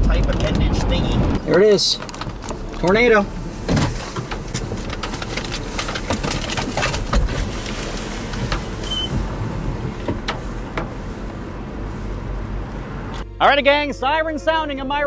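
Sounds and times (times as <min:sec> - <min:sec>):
storm wind rumbling on microphone: 0:00.0 - 0:13.2
rain or hail ticking on car: 0:02.0 - 0:11.4.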